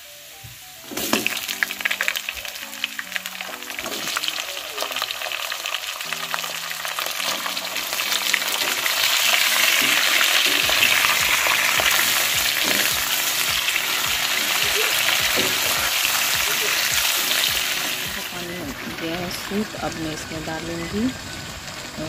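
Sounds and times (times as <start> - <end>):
chicken frying in hot oil: 0.0 - 22.0
spatula scraping a pan: 8.5 - 16.9.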